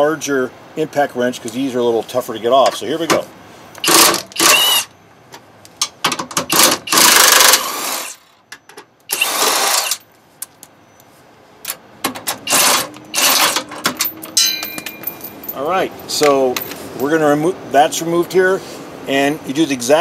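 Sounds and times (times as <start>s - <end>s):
impact wrench hammering: 3.8s - 4.9s.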